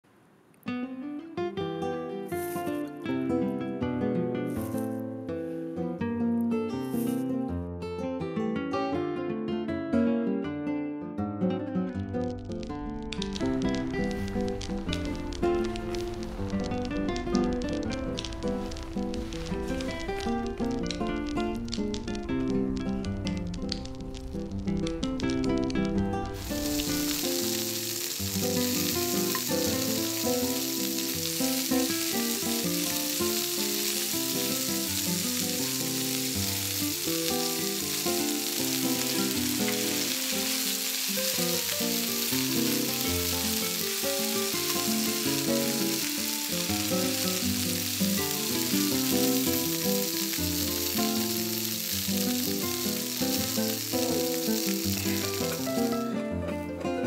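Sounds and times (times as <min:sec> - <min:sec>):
meat and vegetables sizzling: 0:02.2 - 0:03.6, 0:04.4 - 0:05.0, 0:12.0 - 0:57.0
background music: 0:11.9 - 0:57.0.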